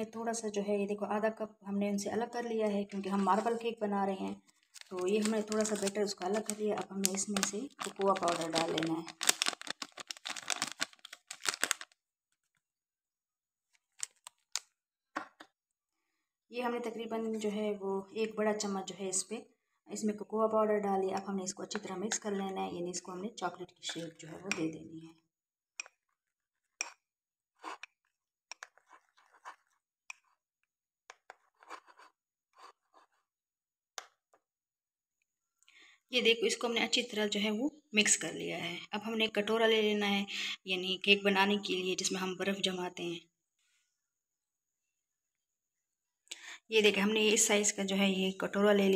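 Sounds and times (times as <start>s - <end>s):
plastic crinkling: 4.4s - 12.6s, 13.7s - 14.8s
metal spoon scraping ceramic mug: 27.6s - 30.3s.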